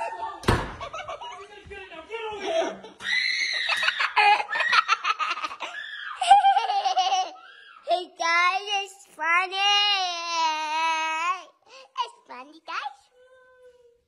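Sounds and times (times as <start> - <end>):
child laughing: 3.6 - 8.0
child's high-pitched cries: 9.5 - 12.0.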